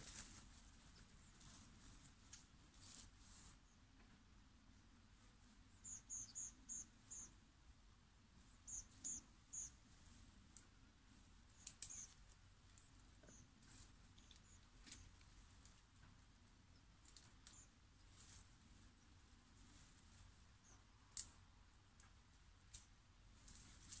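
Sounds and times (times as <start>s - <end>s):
small animal chirping: 5.8s - 7.3s, 8.6s - 9.8s, 11.5s - 12.2s, 14.1s - 15.2s, 17.1s - 17.8s
faint clicks: 11.6s - 13.4s, 14.1s - 16.2s.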